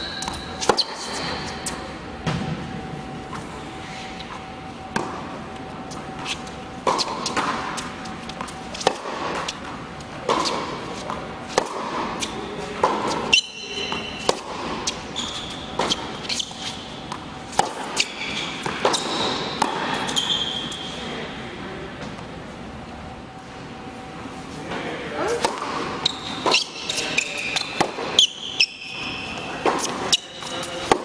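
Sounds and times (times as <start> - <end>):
sneakers squeaking on court: 0.0 - 2.4, 12.2 - 21.0, 25.6 - 30.9
rackets striking tennis ball: 0.1 - 3.4, 4.4 - 20.8, 25.3 - 31.0.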